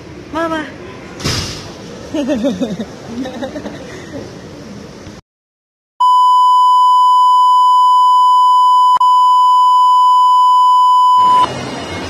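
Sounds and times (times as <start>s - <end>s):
electronic beep tone: 6.0s - 11.5s.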